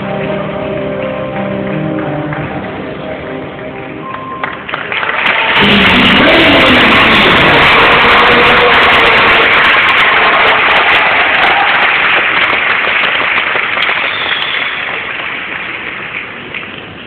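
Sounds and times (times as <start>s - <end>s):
audience applauding: 4.0s - 17.0s.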